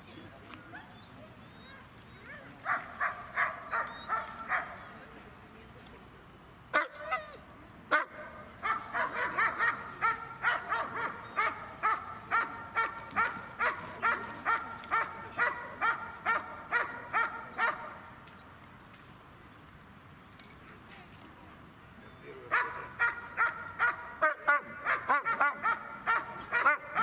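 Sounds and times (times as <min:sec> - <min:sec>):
dog barking: 0:02.7 - 0:04.8, 0:07.9 - 0:18.0, 0:22.5 - 0:27.0.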